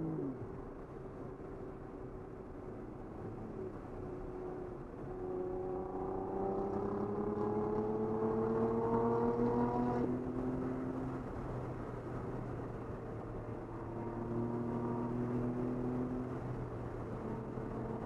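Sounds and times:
low road hum: 0.0s - 18.0s
car engine accelerating: 4.5s - 18.0s.

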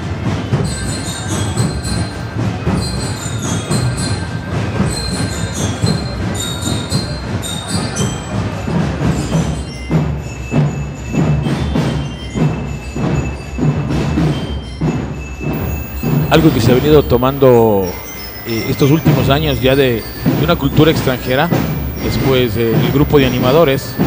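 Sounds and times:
bell-lyre melody: 15.6s - 24.0s
drum beat: 15.6s - 24.0s
marching band playing: 15.6s - 24.0s.

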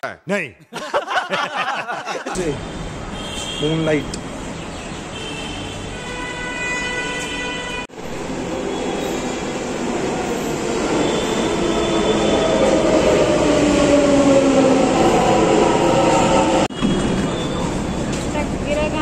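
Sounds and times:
train rushing running noise: 7.9s - 19.0s.

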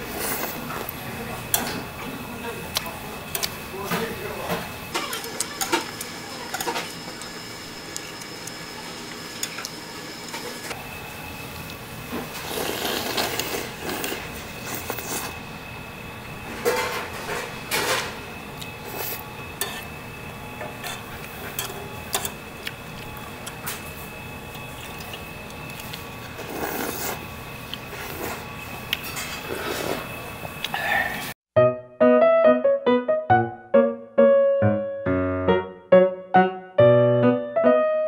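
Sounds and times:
slurping and chewing: 12.3s - 15.4s, 24.5s - 30.8s
utensils clicking on metal pot: 20.8s - 22.4s.

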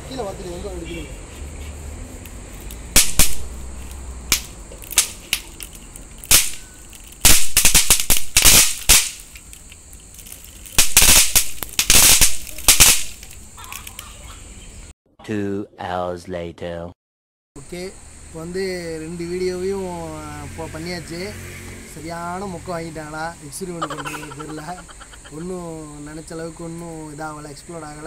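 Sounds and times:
snap pop crackers cracking: 2.3s - 14.1s.

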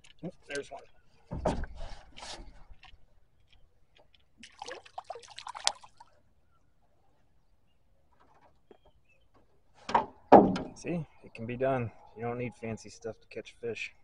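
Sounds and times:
water splashing and dripping: 0.0s - 6.2s.

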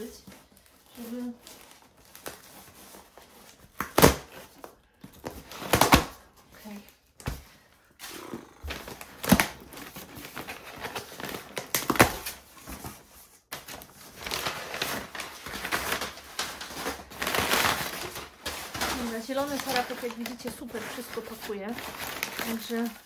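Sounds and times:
packing paper rustling: 0.0s - 7.6s, 8.6s - 23.0s
cardboard box tearing open: 2.1s - 6.2s, 8.0s - 12.8s, 20.9s - 22.8s.

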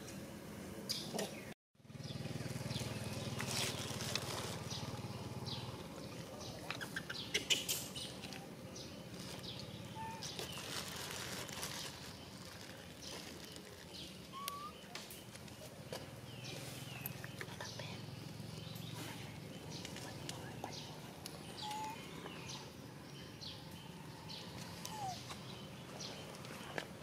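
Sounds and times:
rustles and clicks: 2.8s - 4.9s.

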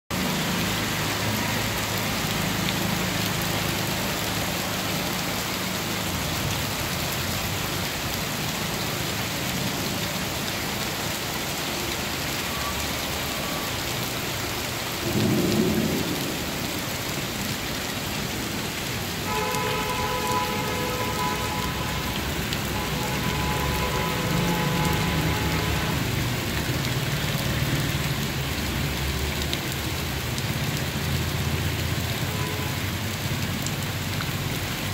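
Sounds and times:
heavy rain and hail pattering: 0.1s - 34.9s
low thunder rumbling: 15.0s - 17.6s.

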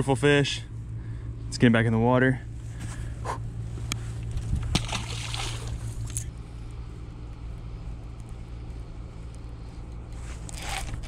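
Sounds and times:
wind rumble on microphone: 4.2s - 4.9s
fish splashing into water: 4.6s - 6.2s.

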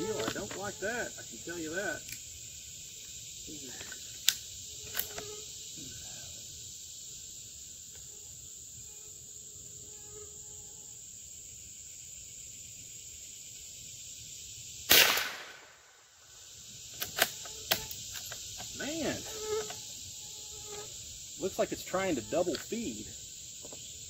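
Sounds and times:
insects droning: 0.0s - 24.0s
rifle shot: 14.9s - 16.0s.

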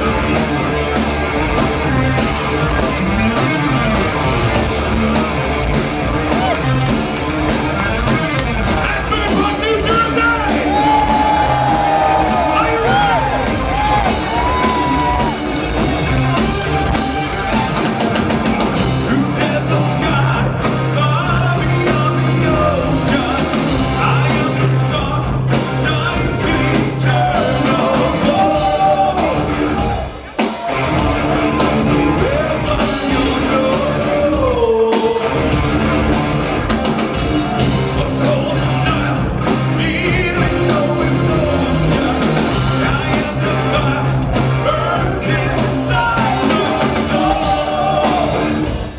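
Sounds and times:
metal band playing live: 0.0s - 48.9s
man singing lead vocal: 8.8s - 15.2s, 19.0s - 30.0s, 31.6s - 35.6s, 37.5s - 48.9s.

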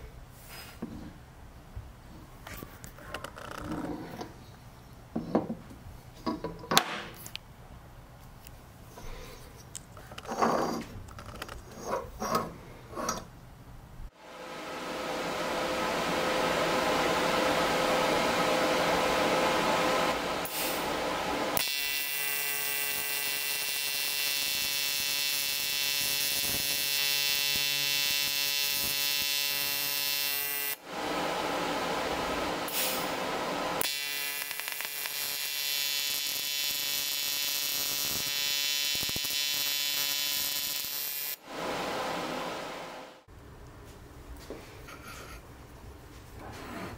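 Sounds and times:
welding arc hissing: 19.9s - 30.8s, 32.1s - 41.4s
welding arc electrical buzz: 19.9s - 30.9s, 31.8s - 41.4s.

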